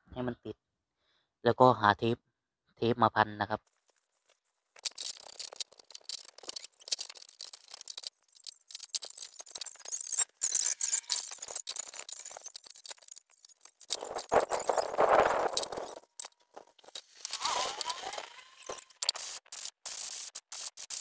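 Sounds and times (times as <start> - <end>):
metal part scraping steel tray: 4.8 - 19.8.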